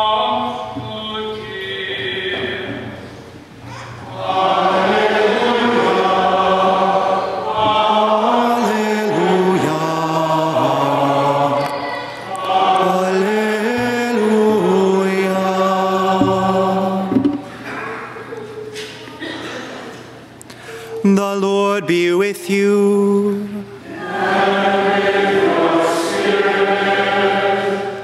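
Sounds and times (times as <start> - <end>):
men singing plainchant: 4.0 - 17.5, 21.2 - 28.0.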